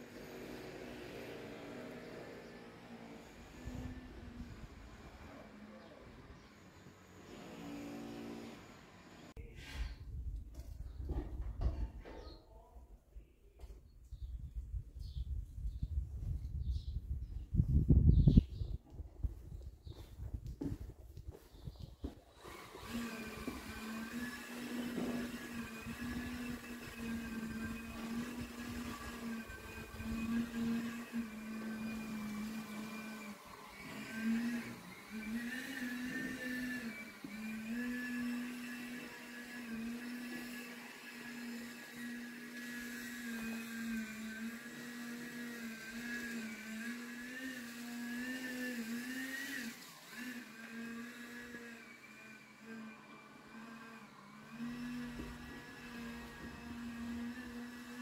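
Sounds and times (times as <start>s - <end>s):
small motor humming: 0.0s - 10.0s, 22.0s - 58.0s.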